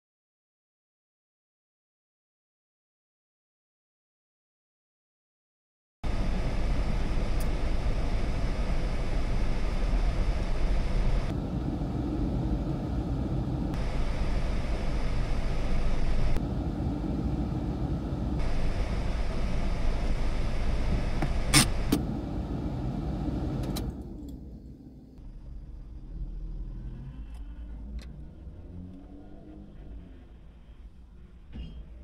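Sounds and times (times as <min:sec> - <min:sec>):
car engine running: 0:06.0 - 0:31.4.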